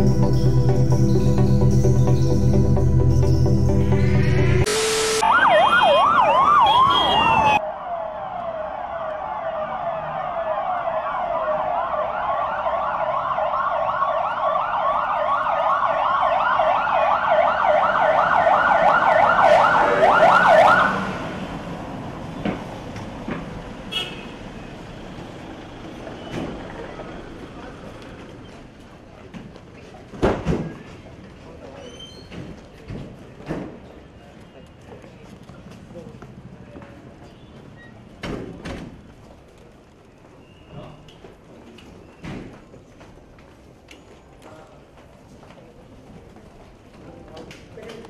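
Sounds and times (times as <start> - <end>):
brief music: 0.0 - 5.4
electronic sirens wailing: 0.0 - 21.5
street noise: 0.0 - 48.0.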